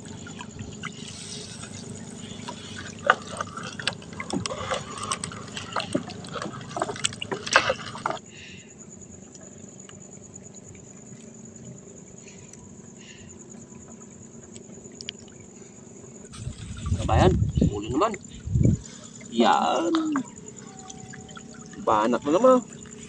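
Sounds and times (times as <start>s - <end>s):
water splashing and dripping: 0.0s - 8.2s, 16.2s - 23.0s.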